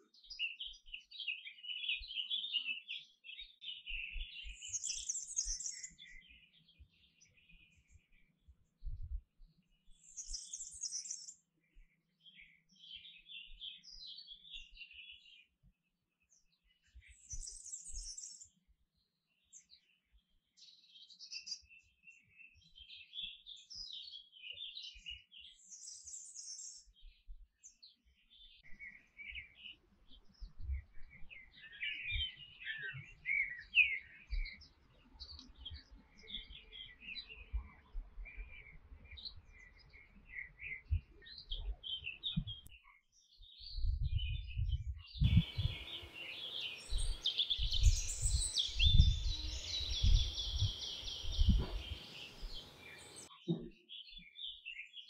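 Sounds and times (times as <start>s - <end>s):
canary singing: 45.3s - 53.3s.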